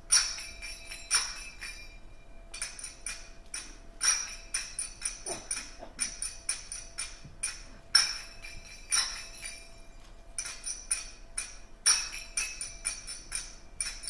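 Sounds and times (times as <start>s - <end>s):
finger cymbals ringing: 0.0s - 14.0s
loud cymbal clashes: 0.0s - 14.0s.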